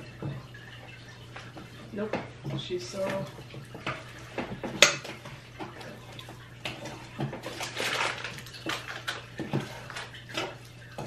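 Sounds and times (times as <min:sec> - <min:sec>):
plastic packet crinkling: 0:07.4 - 0:10.3.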